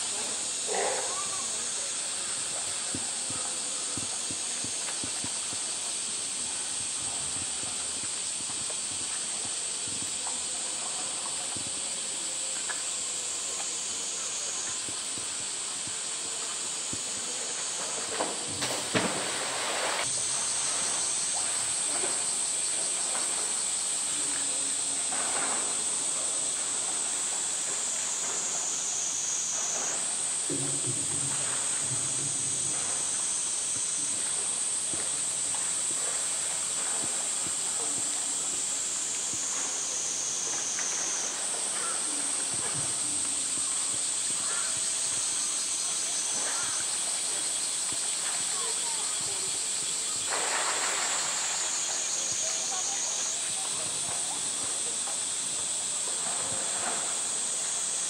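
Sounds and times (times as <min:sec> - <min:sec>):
cicada chorus drone: 0:00.0 - 0:58.0
faint murmuring voices: 0:00.0 - 0:58.0
steady high hiss: 0:00.0 - 0:58.0
light water splashes: 0:01.1 - 0:57.9
water lapping and splashing: 0:46.3 - 0:57.7.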